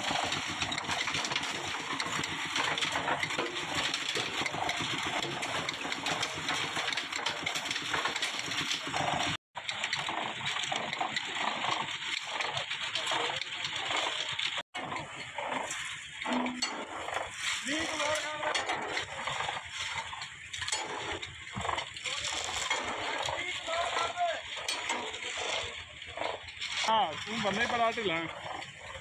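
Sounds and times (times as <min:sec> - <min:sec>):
clanks: 0:00.0 - 0:29.0
hoe scraping wet concrete: 0:00.0 - 0:29.0
voices: 0:17.6 - 0:19.6, 0:22.0 - 0:28.6.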